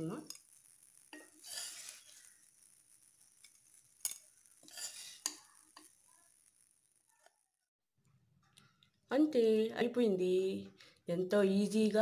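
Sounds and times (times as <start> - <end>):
spoon scraping a pan: 0.2 - 7.4.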